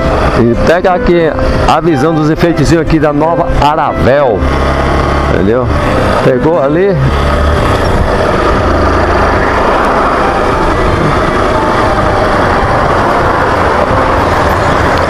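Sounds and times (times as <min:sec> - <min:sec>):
wind and road noise: 0:00.0 - 0:15.0
motorcycle engine running: 0:04.0 - 0:15.0.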